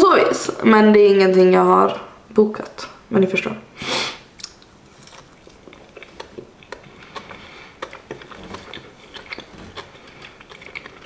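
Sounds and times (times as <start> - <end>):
person chewing: 4.3 - 11.0.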